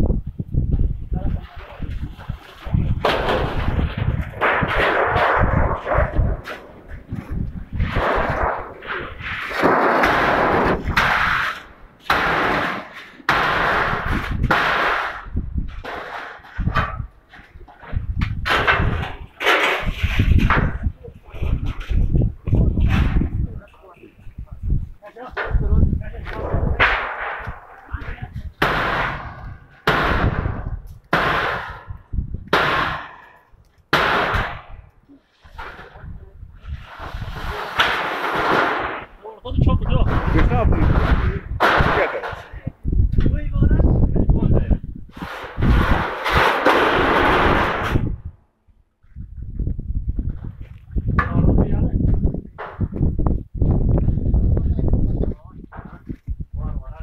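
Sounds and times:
metal roof sheets crashing: 2.6s - 6.8s, 7.8s - 20.8s, 26.4s - 27.8s, 28.6s - 32.0s, 33.9s - 34.8s, 36.7s - 39.1s, 39.7s - 42.6s, 45.2s - 48.1s.

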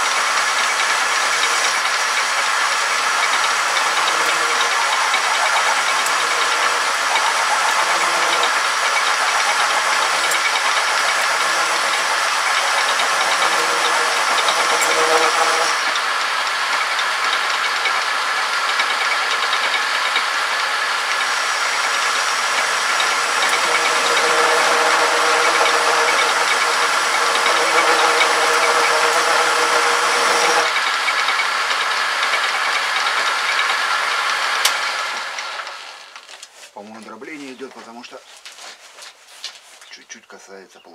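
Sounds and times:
hiss of metal cutting: 0.0s - 16.0s, 20.6s - 30.7s
metal lathe humming and whining: 0.0s - 35.8s.

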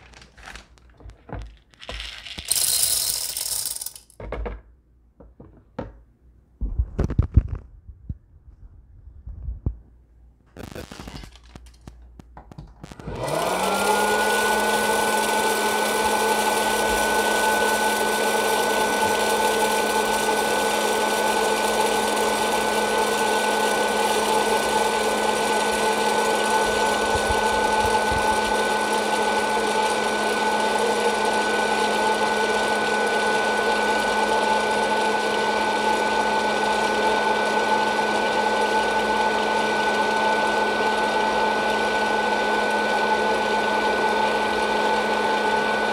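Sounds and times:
popcorn popper fan whirring: 0.0s - 4.1s, 10.6s - 45.9s.

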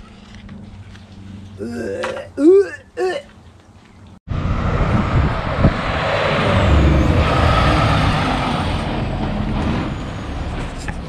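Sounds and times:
diesel truck engine rumbling: 4.3s - 11.0s.

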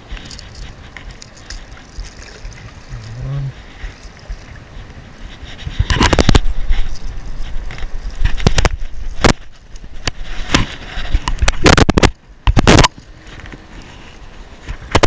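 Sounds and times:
fish handling rustling and scraping: 0.0s - 15.0s
rushes of noise: 0.0s - 15.0s.

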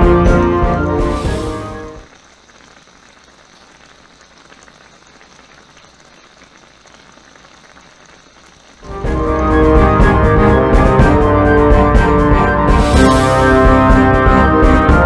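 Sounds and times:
music: 0.0s - 2.1s, 8.8s - 15.0s
broth simmering and bubbling: 0.0s - 15.0s.

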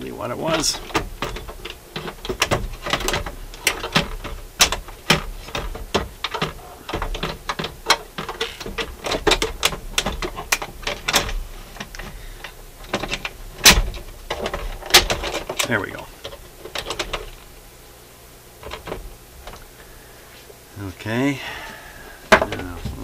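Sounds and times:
turntable mechanism clicks and taps: 0.5s - 17.4s.

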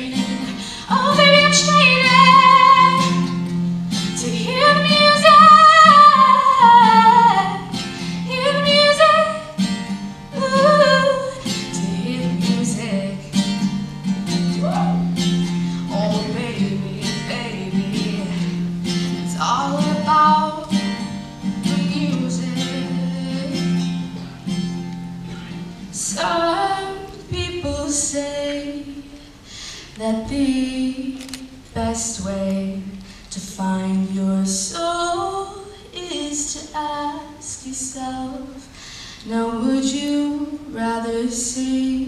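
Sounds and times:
woman singing: 0.0s - 24.2s, 25.8s - 29.3s, 30.0s - 42.0s
acoustic guitar strumming: 0.0s - 29.2s.

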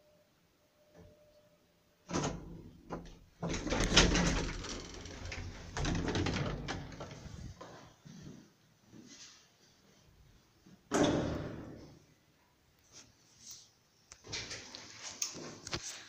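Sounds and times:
door clattering and rattling: 2.1s - 7.6s
lift doors clunking open: 2.1s - 7.6s.

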